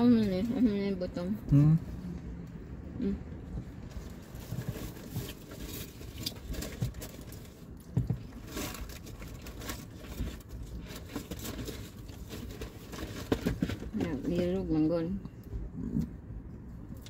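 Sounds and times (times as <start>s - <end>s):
packaging rustling: 4.2s - 14.0s.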